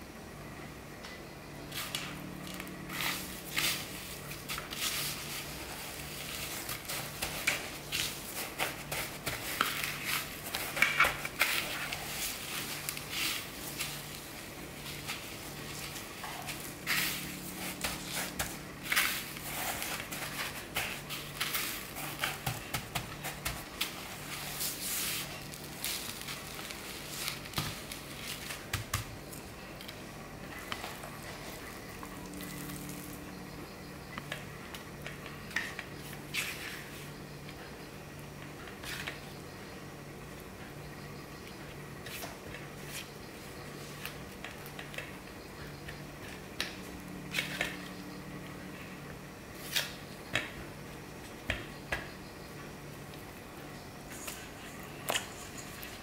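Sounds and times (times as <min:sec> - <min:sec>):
faint low hum: 0:00.0 - 0:56.0
breadcrumbs crunching and rustling: 0:01.8 - 0:33.5.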